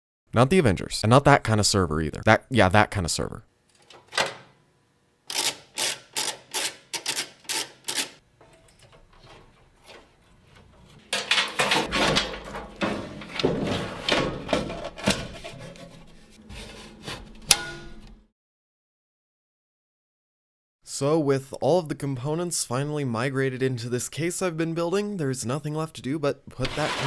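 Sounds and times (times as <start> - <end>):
metal and plastic parts scraping: 5.3 - 18.2, 26.6 - 27.0.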